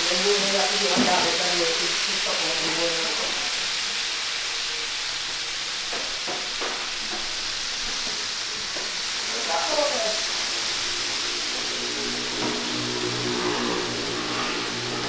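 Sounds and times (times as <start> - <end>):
chicken sizzling in hot oil: 0.0 - 15.0.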